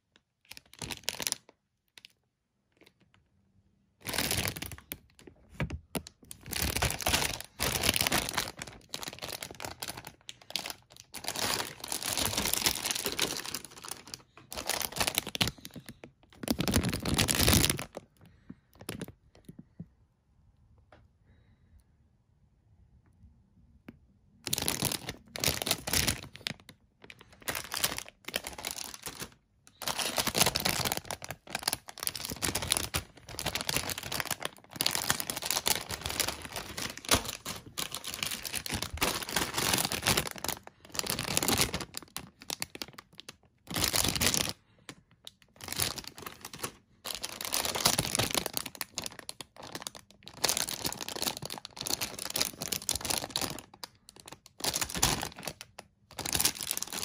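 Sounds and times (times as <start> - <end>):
plastic bags crinkling: 0.4 - 2.1, 4.0 - 19.6, 24.4 - 57.0.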